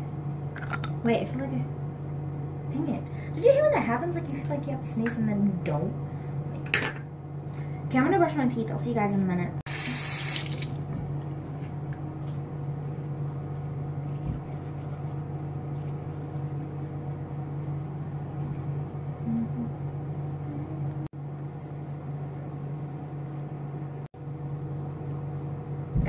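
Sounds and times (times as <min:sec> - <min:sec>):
steady hum with tones: 0:00.0 - 0:26.0
tap water running: 0:09.7 - 0:10.9
toothbrush scrubbing teeth: 0:12.2 - 0:19.5.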